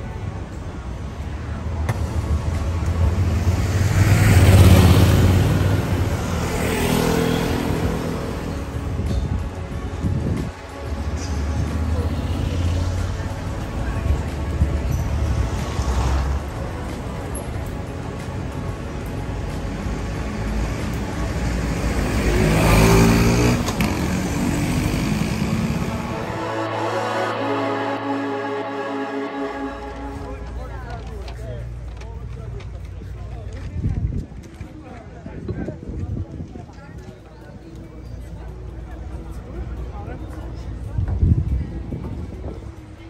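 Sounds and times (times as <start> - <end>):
vehicles passing by: 0.0 - 35.2
street traffic: 0.0 - 43.0
vehicle engine passing: 2.0 - 8.9, 21.5 - 31.3.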